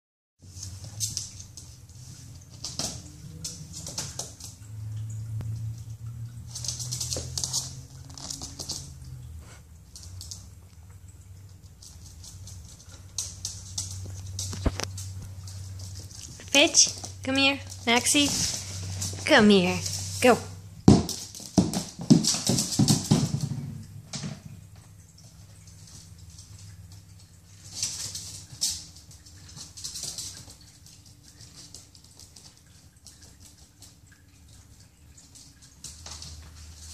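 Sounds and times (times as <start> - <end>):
low steady hum: 0.4 - 36.9
dog claws skittering on floor: 6.5 - 9.2, 11.5 - 20.2, 20.8 - 34.0.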